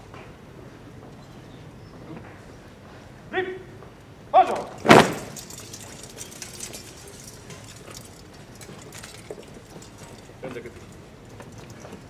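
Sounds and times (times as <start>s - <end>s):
person shouting a command: 3.3s - 4.8s
light metallic clinks: 4.5s - 12.0s
sharp crash of drill movement: 4.8s - 5.8s.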